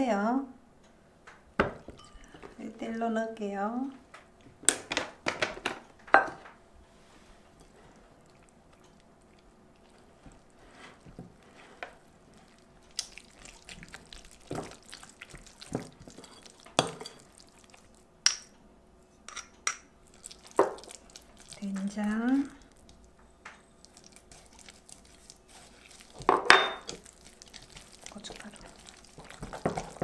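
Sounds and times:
spoon clinking against bowl: 2.0 - 2.4
spoon stirring batter in glass bowl: 19.2 - 30.0.

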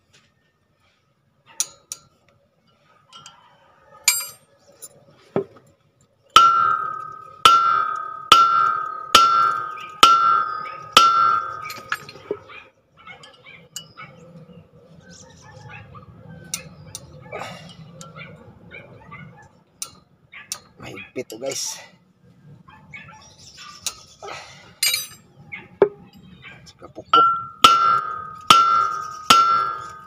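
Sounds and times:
hammer striking metal disc: 6.4 - 12.2, 27.2 - 30.0.

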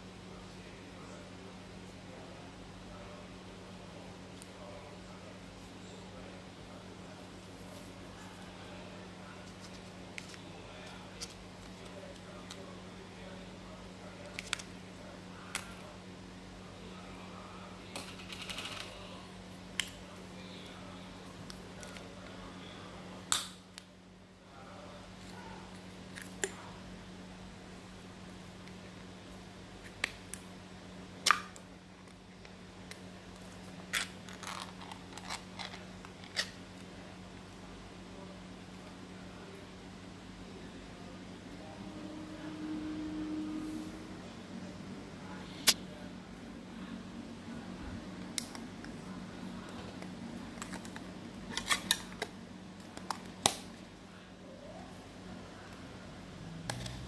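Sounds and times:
low hum: 39.2 - 51.6.

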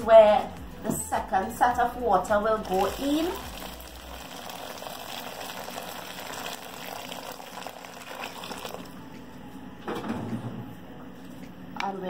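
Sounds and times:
chickpeas simmering: 2.6 - 8.9
hot water pouring into pan: 2.6 - 9.0.

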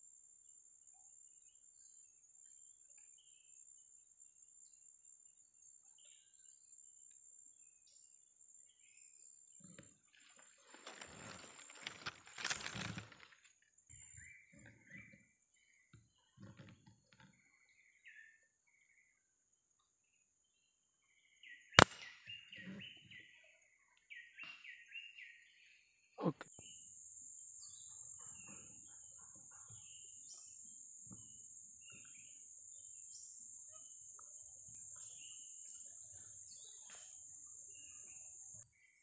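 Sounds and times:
insect drone: 0.0 - 39.0
bird chirping trills: 13.8 - 39.0
air rifle shot: 21.8 - 22.3.

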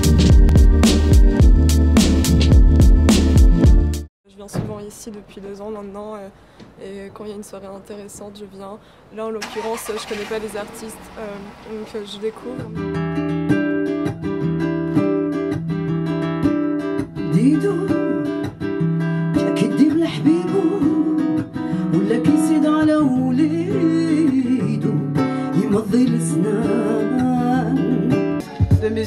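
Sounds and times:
woman singing: 9.4 - 12.8, 17.2 - 18.5, 19.4 - 29.0.

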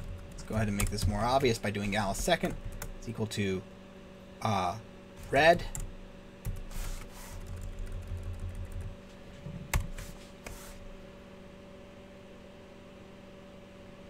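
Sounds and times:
computer keyboard keystrokes: 0.0 - 1.5, 5.6 - 8.9
faint steady hum: 0.0 - 14.0.

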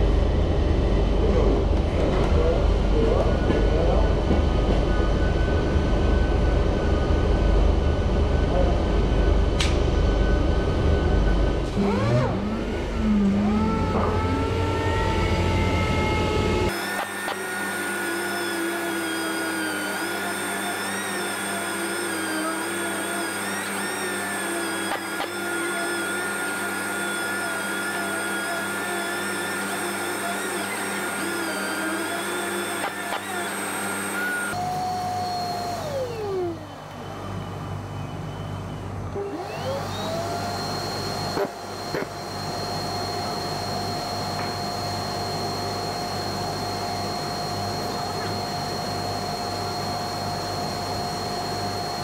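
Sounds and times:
dust extractor humming: 0.0 - 52.0
air-powered sander whining: 10.1 - 37.9, 38.8 - 52.0.

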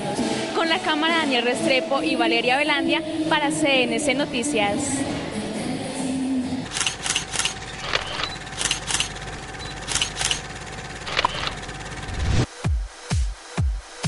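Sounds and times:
sharp electronic clicks: 6.7 - 11.7.

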